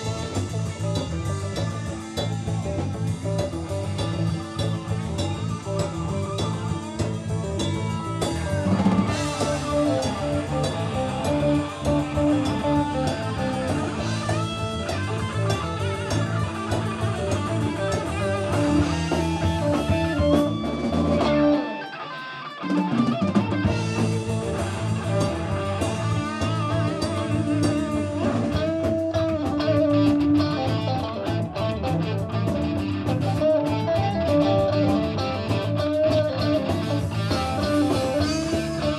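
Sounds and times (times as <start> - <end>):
live rock band playing: 0.0 - 38.9.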